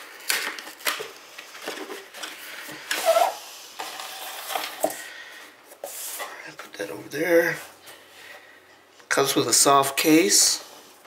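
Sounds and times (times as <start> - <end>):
packaging rustling and scraping: 0.0 - 6.4
squeaky scrape: 2.9 - 4.6.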